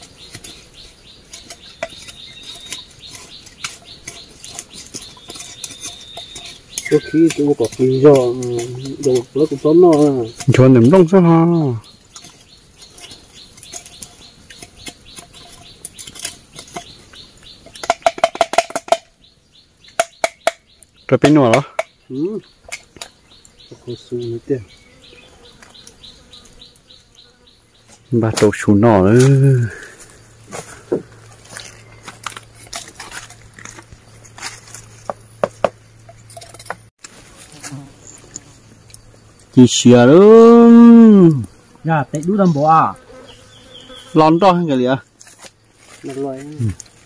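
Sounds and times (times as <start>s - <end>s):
knife scraping bamboo: 0.0s - 10.9s, 11.9s - 19.1s, 29.1s - 39.0s, 45.1s - 47.0s
stick knocking in bamboo tube: 1.3s - 11.0s, 17.6s - 19.1s, 19.9s - 21.9s, 35.1s - 35.8s
high chirp: 1.5s - 9.1s.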